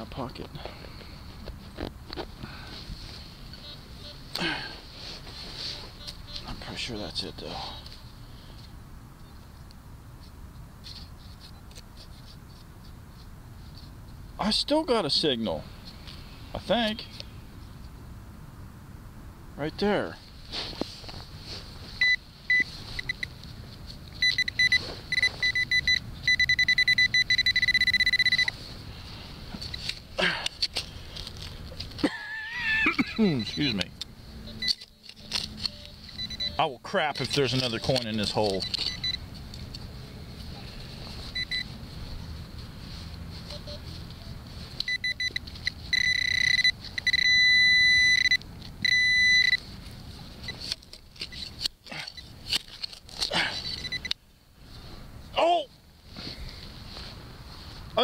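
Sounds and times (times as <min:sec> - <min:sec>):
metal detector probe beeping: 0:03.5 - 0:04.2, 0:05.6 - 0:06.6, 0:22.0 - 0:23.4, 0:24.1 - 0:28.6, 0:32.6 - 0:39.7, 0:41.2 - 0:41.8, 0:43.4 - 0:49.7, 0:50.4 - 0:52.3, 0:53.6 - 0:54.2.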